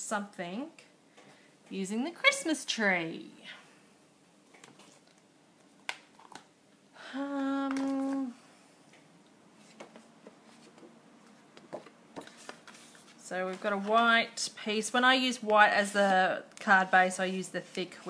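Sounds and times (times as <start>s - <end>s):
woman humming: 7.0s - 8.5s.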